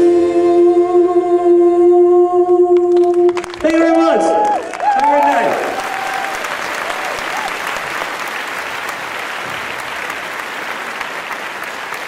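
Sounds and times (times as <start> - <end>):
audience applauding: 2.9 - 12.0.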